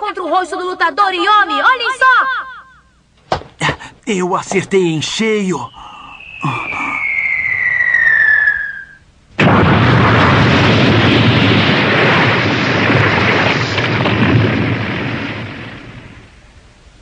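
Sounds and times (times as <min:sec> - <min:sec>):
falling whistle: 0:05.4 - 0:09.1
heavy rumbling: 0:05.5 - 0:16.6
body crashing into ground: 0:09.4 - 0:16.1.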